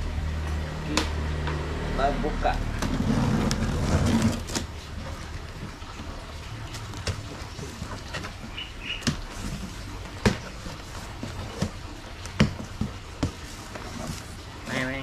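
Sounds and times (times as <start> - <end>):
cardboard box knocks and clicks: 6.9 - 14.2.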